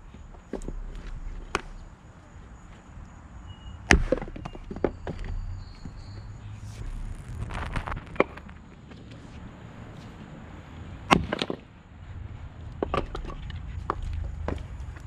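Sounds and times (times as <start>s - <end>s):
axe chopping wood: 3.9s - 5.3s, 11.1s - 11.6s
split wood clattering: 11.1s - 11.7s.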